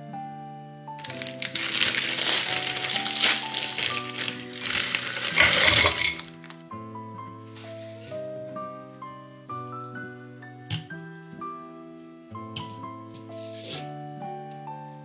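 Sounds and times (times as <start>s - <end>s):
background music: 0.0s - 15.0s
frozen chunks clattering in plastic cup: 1.0s - 6.6s.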